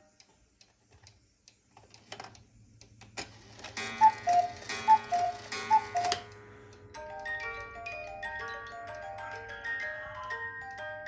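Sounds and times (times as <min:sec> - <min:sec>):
cuckoo clock calling: 0:03.7 - 0:06.4.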